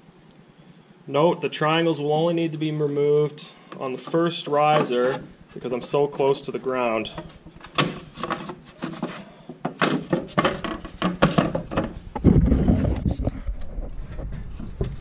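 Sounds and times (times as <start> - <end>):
wooden knocks taps and rubbing: 7.1 - 15.0.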